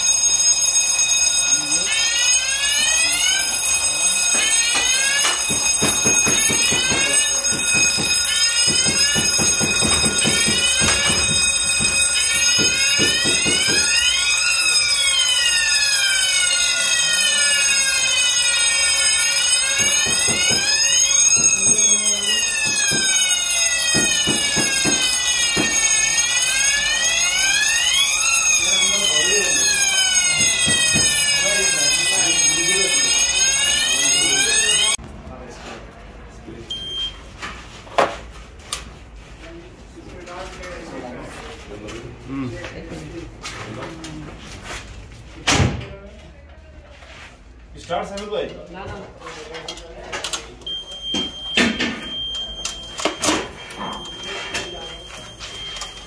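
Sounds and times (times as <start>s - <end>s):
fire alarm bell ringing: 0.0s - 35.0s, 36.7s - 37.2s, 50.2s - 56.0s.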